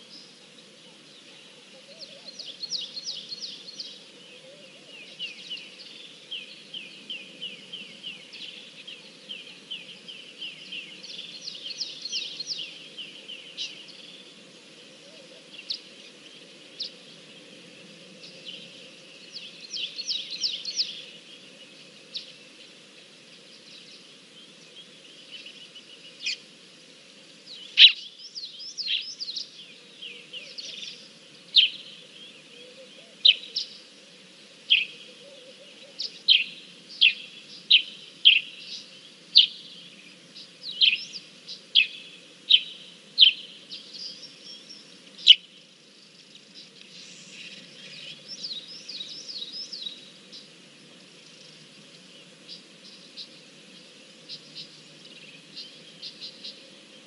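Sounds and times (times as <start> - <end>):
birds chirping: 0.0 - 57.0
low background noise: 0.0 - 57.0.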